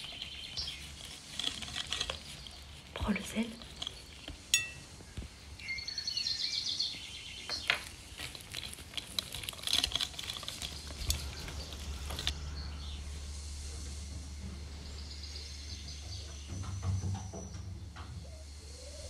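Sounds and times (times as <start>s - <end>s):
whisk clinking against glass bowl: 4.5s - 4.8s.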